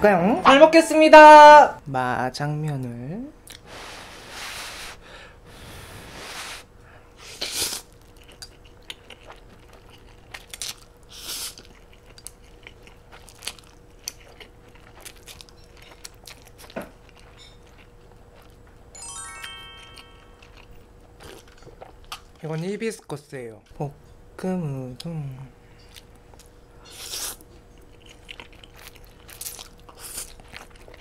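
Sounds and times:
wet chewing: 7.7s - 18.8s, 20.4s - 22.4s, 25.8s - 31.0s.

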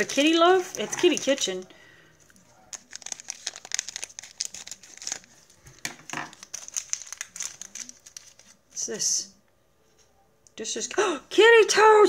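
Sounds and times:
packaging crinkling: 0.0s - 8.8s.

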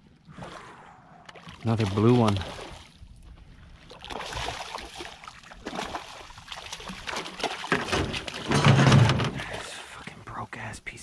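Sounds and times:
water splashing and trickling: 0.1s - 10.6s.

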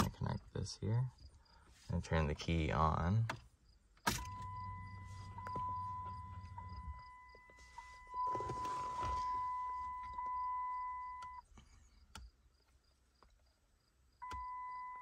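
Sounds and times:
car warning chime beeping: 4.1s - 11.5s, 14.2s - 15.0s
rustling: 4.9s - 10.1s.

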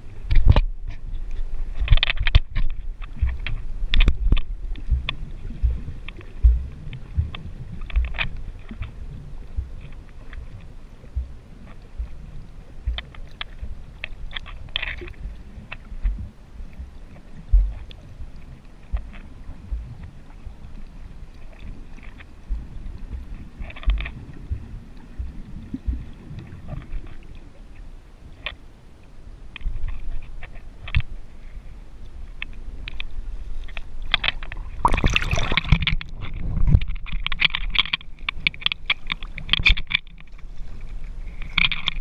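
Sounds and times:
muffled water thumping against housing: 1.8s - 10.5s, 11.1s - 11.4s, 15.0s - 18.0s, 34.2s - 40.1s.

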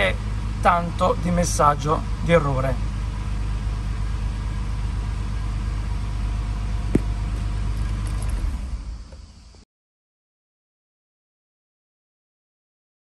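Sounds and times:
car engine idling: 0.0s - 9.6s.

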